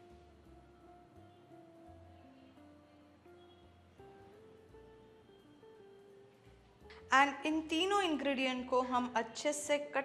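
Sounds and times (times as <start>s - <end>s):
faint slow background music: 0.0s - 10.0s.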